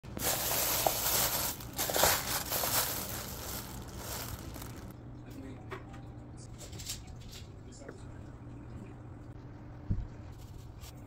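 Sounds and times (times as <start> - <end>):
plastic packaging crinkling: 0.1 - 4.9.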